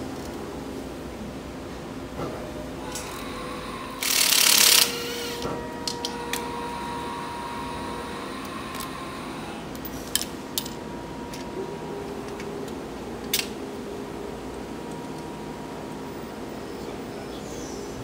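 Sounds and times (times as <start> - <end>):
tools clicking: 13.2 - 13.6.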